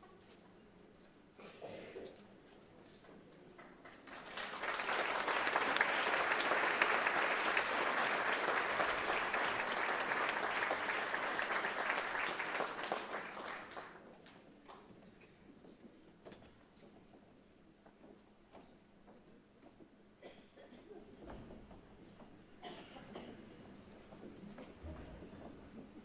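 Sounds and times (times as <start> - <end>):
audience applauding: 3.8 - 14.1.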